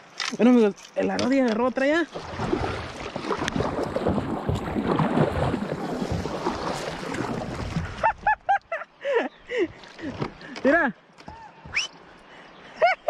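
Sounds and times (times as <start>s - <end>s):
paddle splashing through water: 1.8s - 8.3s.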